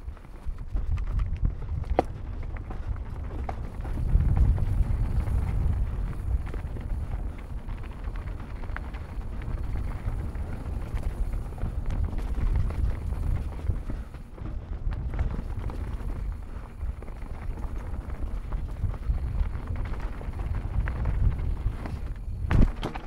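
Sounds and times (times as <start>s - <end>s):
bike clicks and rattles: 0.0s - 23.0s
wind buffeting microphone: 0.0s - 23.0s
tyre rumble on dirt: 0.5s - 23.0s.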